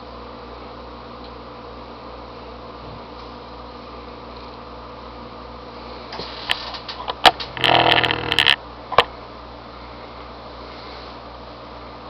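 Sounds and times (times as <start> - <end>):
steady background hum: 0.0 - 12.0
sharp clicks and snaps: 6.5 - 9.1.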